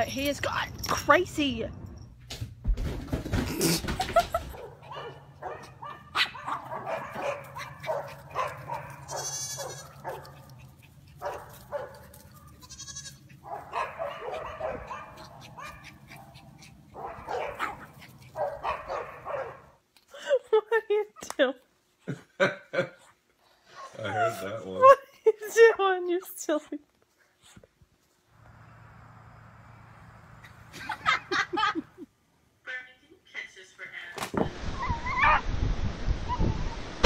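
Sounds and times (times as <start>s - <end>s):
small dog barking: 4.6s - 12.5s, 13.4s - 19.8s
goat bleating: 8.9s - 10.7s, 12.2s - 13.4s
steady low hum: 28.3s - 32.4s.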